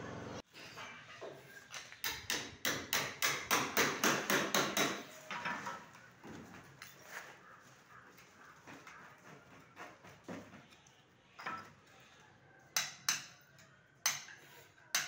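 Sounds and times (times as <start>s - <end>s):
hammer striking: 2.0s - 5.1s.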